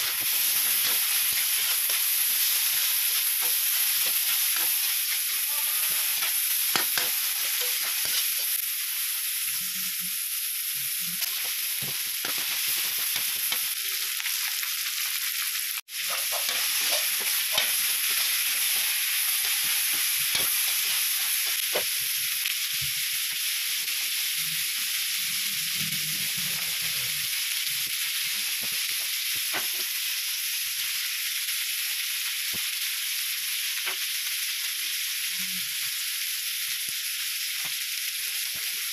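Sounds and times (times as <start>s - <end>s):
metal spatula scraping pan: 0.0s - 8.5s, 16.0s - 21.8s
food sizzling in a wok: 0.0s - 38.9s.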